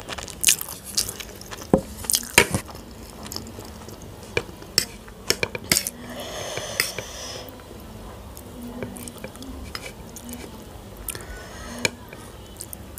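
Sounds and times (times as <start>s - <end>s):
fork scraping a ceramic plate: 5.7s - 7.2s.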